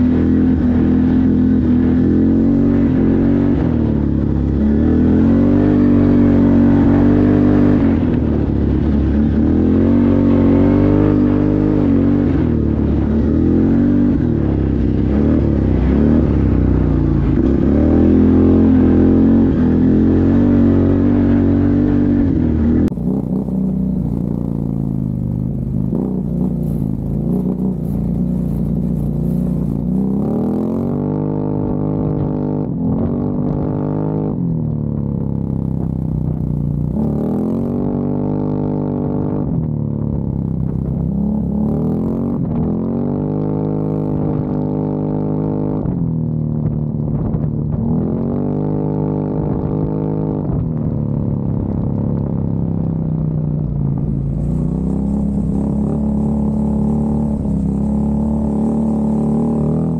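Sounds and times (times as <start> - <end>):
quad bike engine revving: 0.0 - 45.9, 53.7 - 59.9
tyres crackling on gravel: 22.9 - 30.9.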